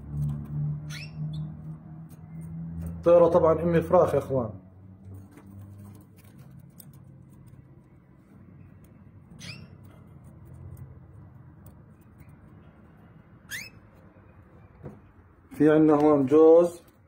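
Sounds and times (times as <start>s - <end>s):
canaries squeaky calls: 0.0s - 3.0s, 6.8s - 14.8s.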